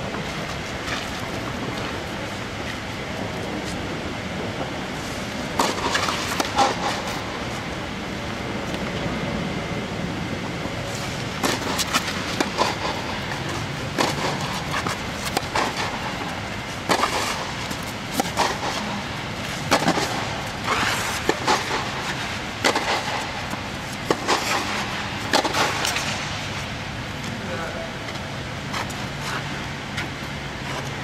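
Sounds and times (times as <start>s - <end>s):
steady low hum: 0.0s - 31.0s
tennis ball bouncing: 11.4s - 18.8s.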